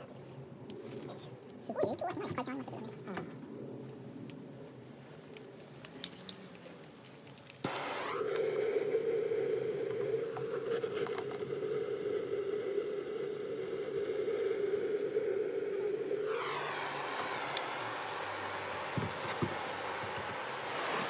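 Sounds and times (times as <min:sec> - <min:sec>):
hissing torch flame: 0:07.0 - 0:21.0
torch igniter click: 0:07.6 - 0:12.1, 0:15.1 - 0:20.5.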